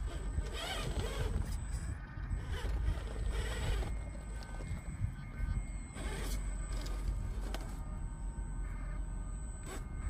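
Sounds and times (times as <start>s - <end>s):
tires scraping on stone: 0.0s - 4.9s
electric motor and gears whining: 0.0s - 10.0s
steady low rumble: 0.0s - 10.0s.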